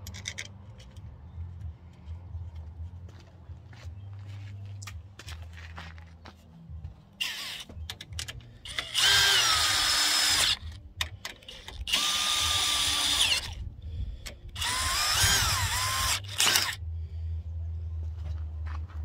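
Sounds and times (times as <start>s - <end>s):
cordless drill whining: 8.6s - 10.7s, 11.6s - 13.6s, 14.6s - 16.8s.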